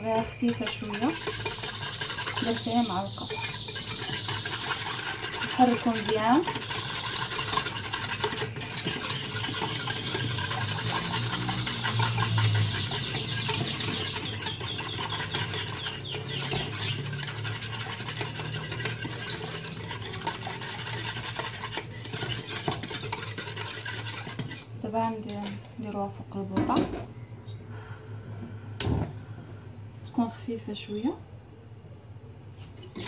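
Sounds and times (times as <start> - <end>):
whisk scraping a saucepan: 0.0 - 25.4, 32.6 - 33.0.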